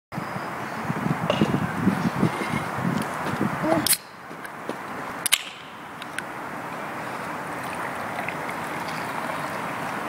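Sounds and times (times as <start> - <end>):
soft drink fizzing in a glass: 7.6 - 10.0.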